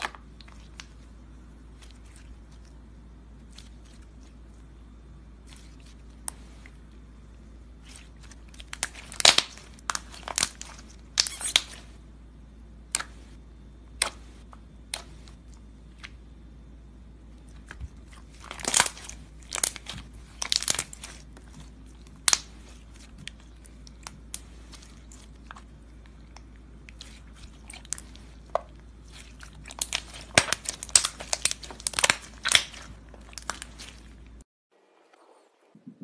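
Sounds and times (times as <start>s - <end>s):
bead slime squished by hand: 17.4s - 25.8s, 26.4s - 34.4s.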